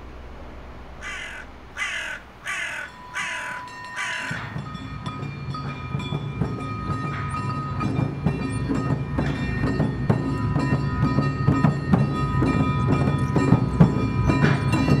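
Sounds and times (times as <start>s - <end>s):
crow cawing: 1.0s - 4.6s.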